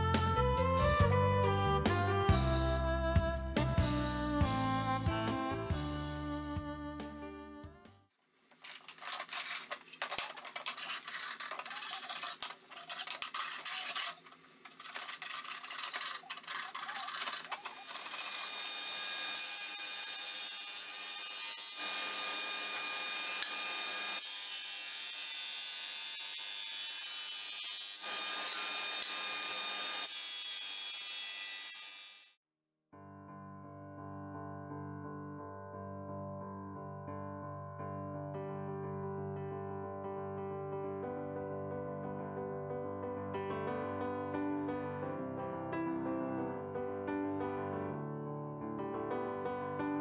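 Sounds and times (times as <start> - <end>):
scraping on wood: 8.6 - 18.7.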